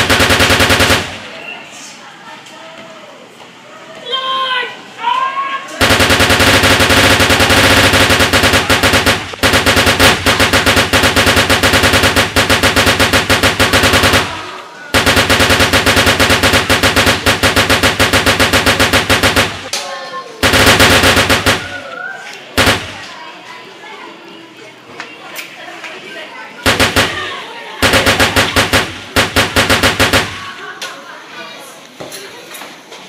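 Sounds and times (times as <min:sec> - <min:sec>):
machine gun rapid fire: 0:00.0 - 0:01.5, 0:05.8 - 0:19.7, 0:20.4 - 0:22.0, 0:22.6 - 0:23.2, 0:26.6 - 0:30.7.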